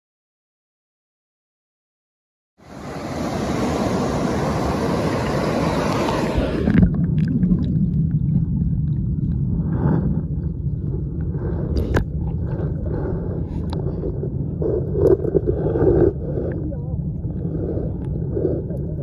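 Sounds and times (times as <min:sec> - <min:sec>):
stream rapids rushing: 0:02.6 - 0:06.7
underwater muffled rumble: 0:02.7 - 0:19.0
faint underwater clicks: 0:10.7 - 0:19.0.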